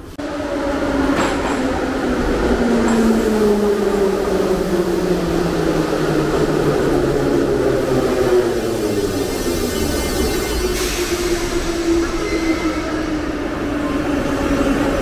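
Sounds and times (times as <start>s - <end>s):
wheels rumbling on rails: 0.0s - 15.0s
train braking: 6.4s - 15.0s.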